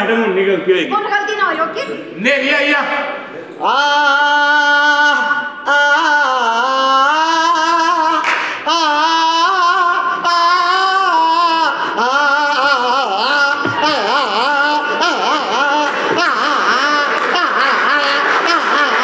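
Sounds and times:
woman singing with vibrato: 3.6s - 19.0s
woman breathing: 14.8s - 15.1s, 15.9s - 16.2s.

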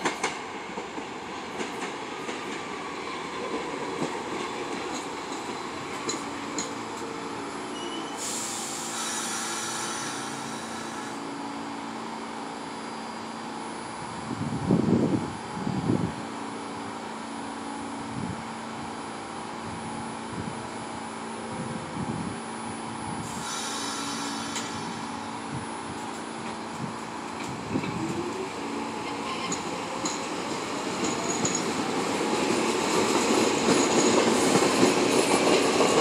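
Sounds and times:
subway train rumbling: 0.0s - 36.0s
air hissing: 8.1s - 11.2s, 23.2s - 25.2s.

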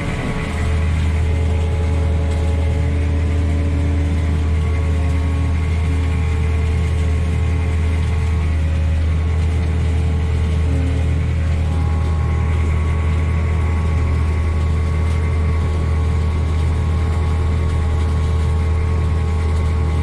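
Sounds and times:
diesel farm machinery droning: 0.0s - 20.0s.

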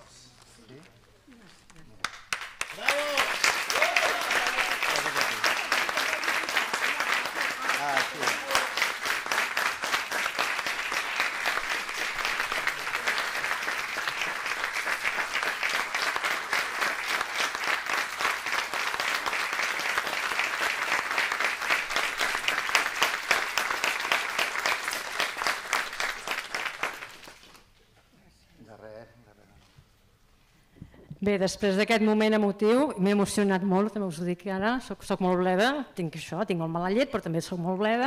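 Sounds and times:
audience applauding: 2.0s - 27.6s.

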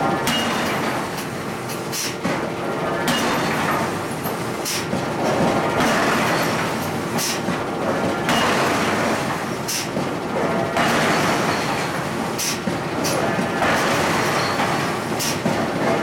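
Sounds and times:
forging machinery noise: 0.0s - 16.0s.

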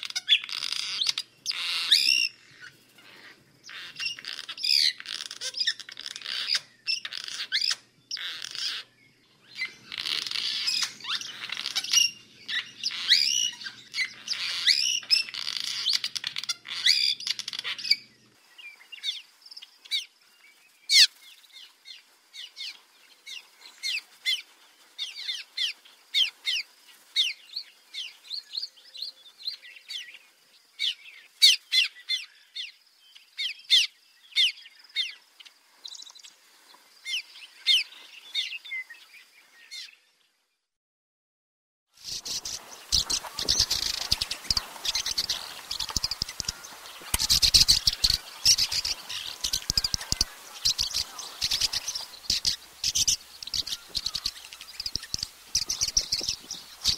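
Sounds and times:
swallows chattering: 0.0s - 18.3s, 42.0s - 56.9s
short downward-sliding bird calls: 42.0s - 56.9s.

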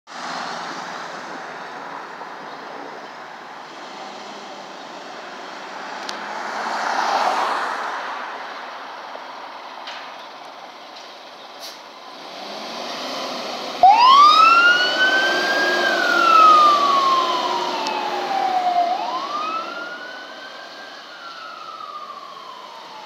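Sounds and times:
street noise: 0.1s - 23.0s
fire engine running: 9.1s - 12.2s, 13.6s - 23.0s.

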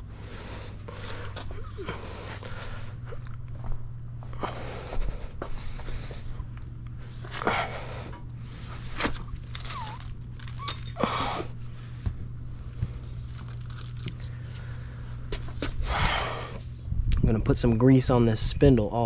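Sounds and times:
steady low hum: 0.0s - 19.0s
paper packet rustling: 8.9s - 10.6s, 13.2s - 14.3s.

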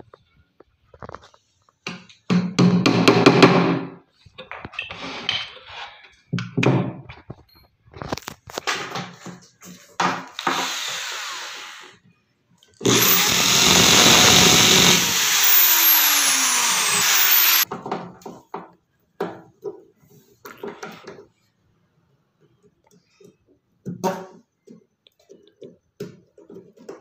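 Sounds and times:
electric drill boring metal: 10.4s - 12.0s, 12.8s - 17.6s.

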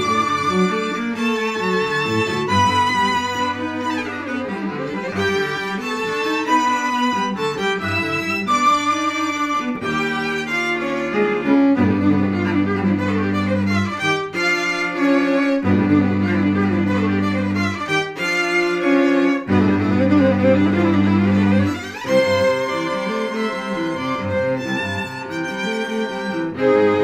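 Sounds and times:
bowed strings music: 0.0s - 27.0s.

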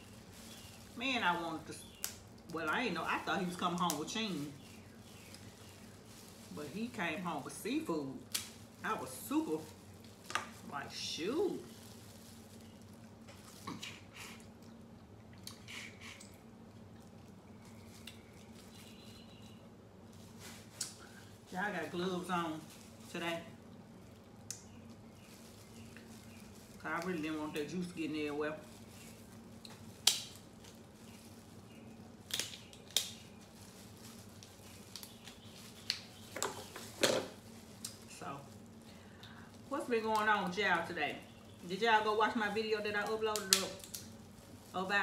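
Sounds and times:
low steady hum: 0.0s - 45.0s
wet chewing mouth sounds: 13.1s - 19.4s
shell cracking: 29.6s - 30.8s, 32.2s - 33.3s.

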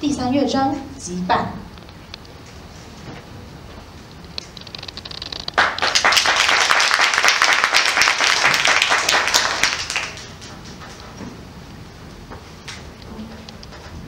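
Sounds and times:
audience applauding: 5.5s - 10.8s.

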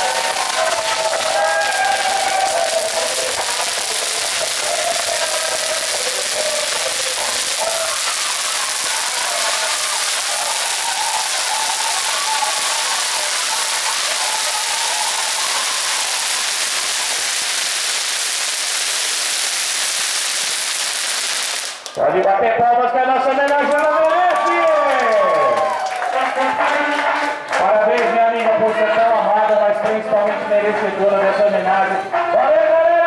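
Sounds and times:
firework flare hissing: 0.0s - 22.0s.

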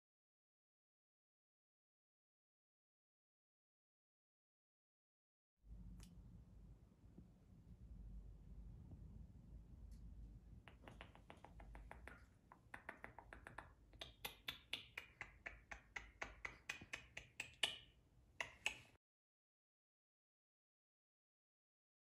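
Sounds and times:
sharp short clicks: 10.7s - 19.0s.

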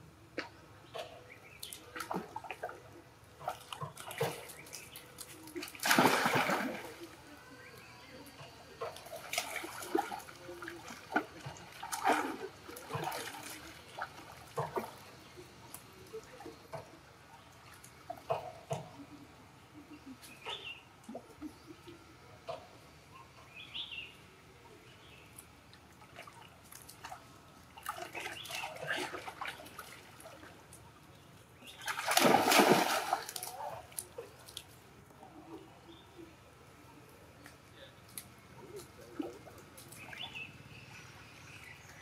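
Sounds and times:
monkeys splashing in water: 3.4s - 7.2s, 8.8s - 15.0s, 31.7s - 34.8s.

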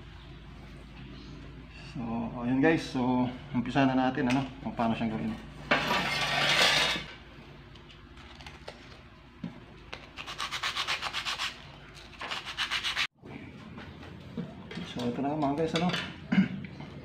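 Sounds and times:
stick scraping on sandpaper: 10.2s - 13.1s.

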